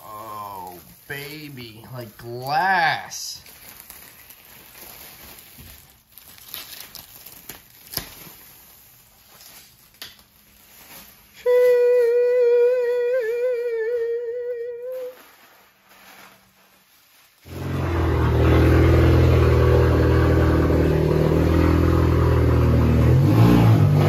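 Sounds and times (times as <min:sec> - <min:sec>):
person humming: 0:00.0 - 0:02.0, 0:11.4 - 0:15.3
faint crinkling: 0:00.3 - 0:02.6, 0:03.3 - 0:17.5.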